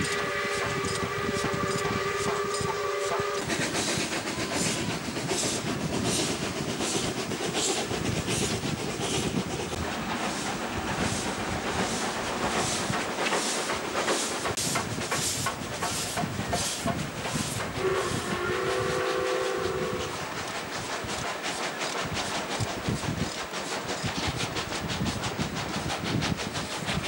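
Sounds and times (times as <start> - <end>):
steam whistle: 0.0 - 3.5, 17.8 - 20.3
steam hissing: 0.0 - 27.0
steam locomotive exhaust beats: 0.0 - 27.0.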